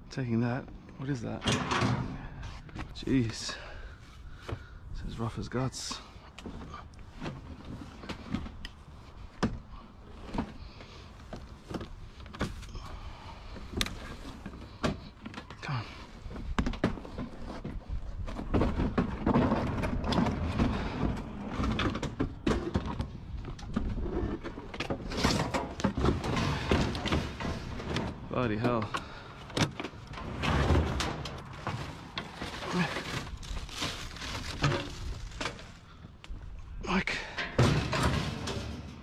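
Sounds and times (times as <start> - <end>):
plastic and metal clattering: 16.2 - 35.9, 37.3 - 39.0.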